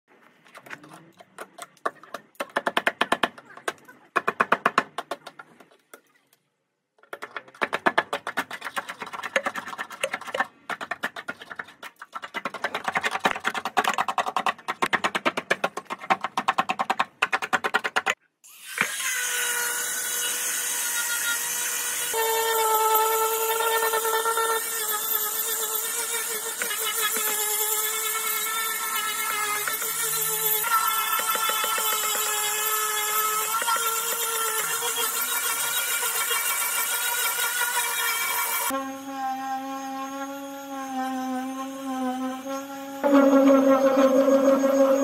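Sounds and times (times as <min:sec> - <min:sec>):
angle grinder whining: 0:18.6 - 0:45.0.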